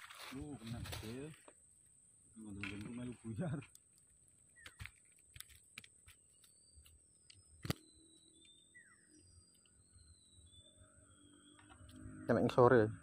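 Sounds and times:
sharp click: 7.3s - 7.9s.

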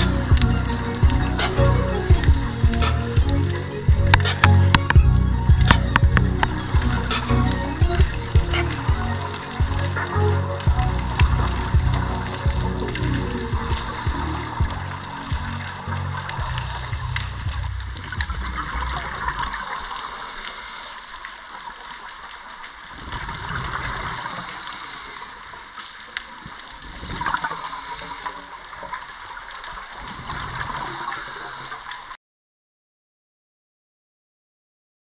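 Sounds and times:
background music: 0.0s - 19.3s
underwater bubbles gurgling: 0.0s - 32.2s.

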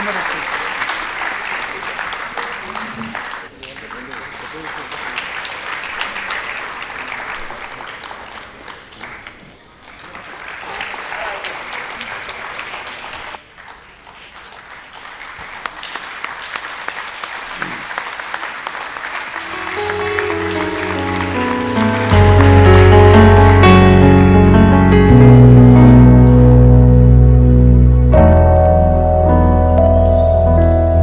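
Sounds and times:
audience applauding: 0.0s - 25.2s
music with sustained notes: 19.4s - 31.0s.

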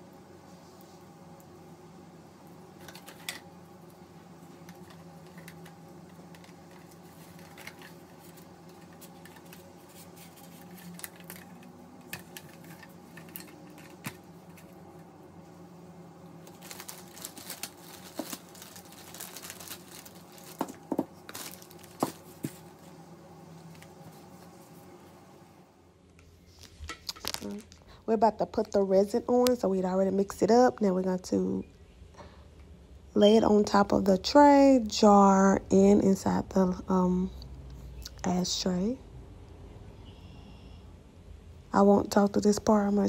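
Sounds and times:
steady low hum: 0.0s - 43.0s
hands handling plastic cups and tools: 4.7s - 14.7s, 16.5s - 22.7s.

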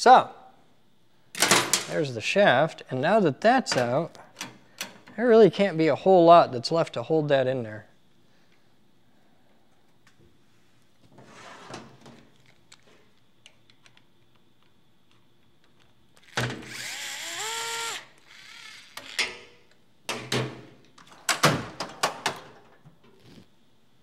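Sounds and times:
electric screwdriver whining: 16.2s - 19.3s.

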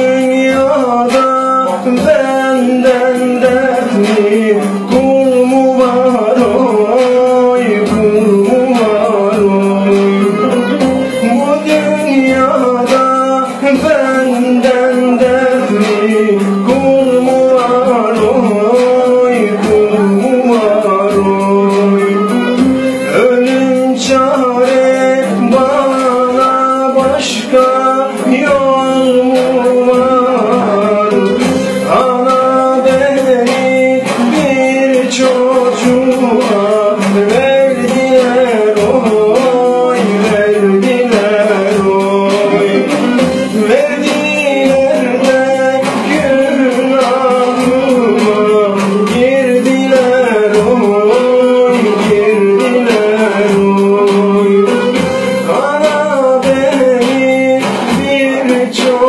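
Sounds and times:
electronic keyboard accompaniment: 0.0s - 59.0s
man singing folk song: 0.0s - 59.0s.

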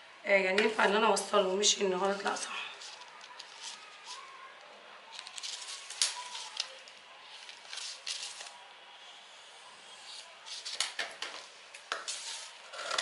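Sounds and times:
paper rustling: 2.7s - 4.5s, 5.1s - 8.6s
scissors snipping paper: 5.1s - 8.6s.

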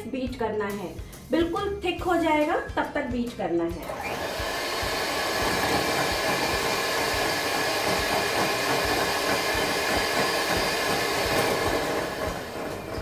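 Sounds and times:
electric hand mixer whining: 3.8s - 13.0s.

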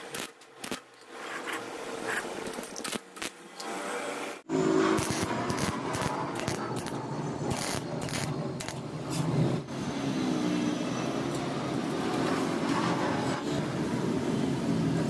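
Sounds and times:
welder arc crackling: 0.0s - 0.9s, 2.4s - 3.4s, 4.9s - 8.8s.

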